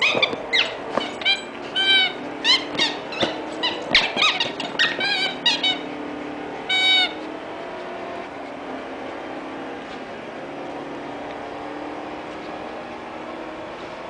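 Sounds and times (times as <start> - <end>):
dog chewing rubber toy: 0.0 - 5.8
squeaky toy squeaking: 0.0 - 6.0, 6.6 - 7.3.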